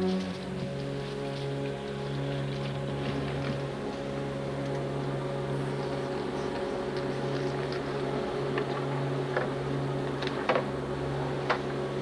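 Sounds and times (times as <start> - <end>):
steady low hum: 0.0 - 12.0
sharp clicks and knocks: 10.2 - 10.7.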